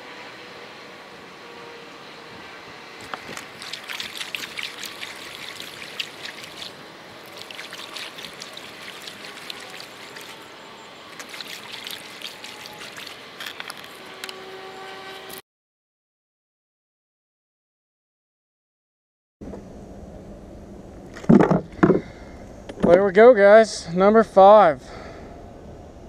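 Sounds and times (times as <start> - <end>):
paddle splashing water: 3.0 - 10.5, 11.1 - 14.0.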